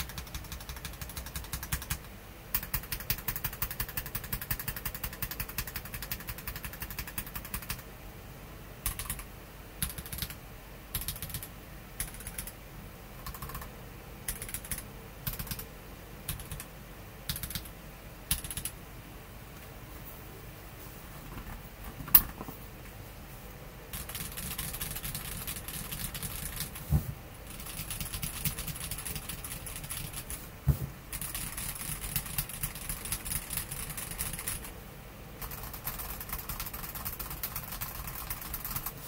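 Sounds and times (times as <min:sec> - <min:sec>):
mechanical keyboard typing: 0:00.0 - 0:07.8, 0:08.8 - 0:12.6, 0:13.2 - 0:13.7, 0:14.3 - 0:15.6, 0:16.3 - 0:16.7, 0:17.3 - 0:17.7, 0:18.3 - 0:18.8, 0:23.9 - 0:26.8, 0:27.5 - 0:30.4, 0:31.1 - 0:34.7, 0:35.4 - 0:39.0.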